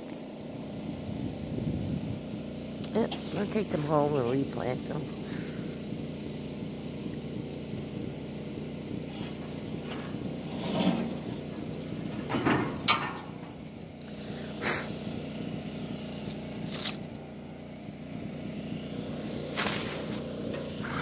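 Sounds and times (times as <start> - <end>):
steady low hum: 0.0 - 21.0
footsteps on dry leaves: 16.0 - 17.3, 19.0 - 20.8.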